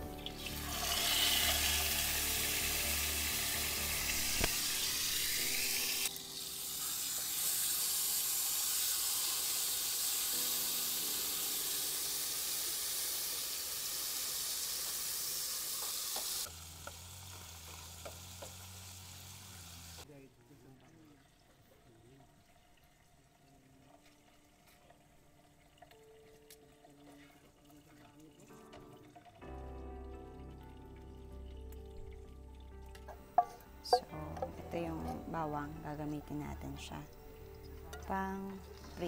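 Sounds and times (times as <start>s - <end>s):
food sizzling in hot oil: 0.0s - 20.1s.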